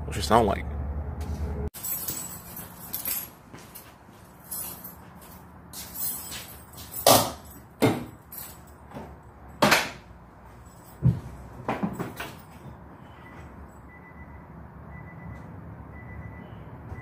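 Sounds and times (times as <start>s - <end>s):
keys jangling: 1.8s - 9.3s, 10.5s - 11.2s.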